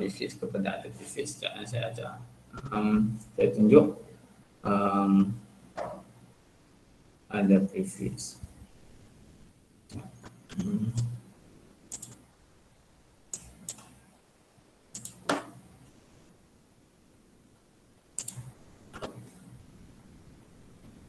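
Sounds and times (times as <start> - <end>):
computer mouse clicking: 11.9 - 12.2, 13.3 - 14.0, 14.9 - 15.6, 18.2 - 19.3.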